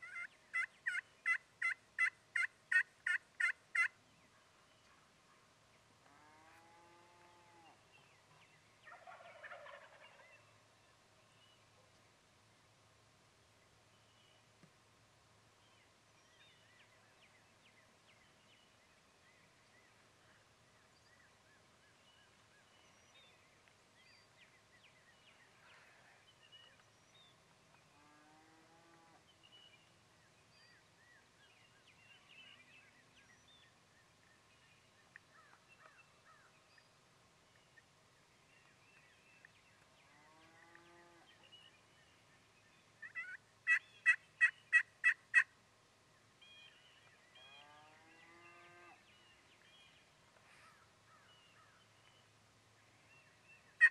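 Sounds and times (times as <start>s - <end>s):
turkey yelps: 0.0s - 3.9s, 43.0s - 45.5s
small birds chirping: 28.9s - 45.4s.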